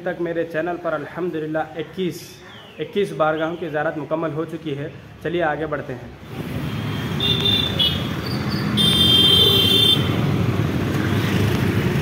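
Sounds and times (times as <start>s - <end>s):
scooter and rickshaw engines: 0.0s - 12.0s
vehicle horn: 8.8s - 10.1s.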